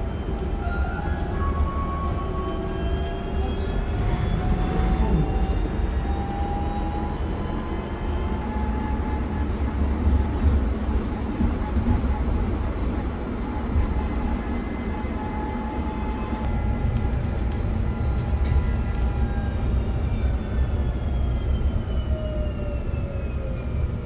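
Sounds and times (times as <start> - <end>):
road and tyre rumble: 1.5 - 12.1.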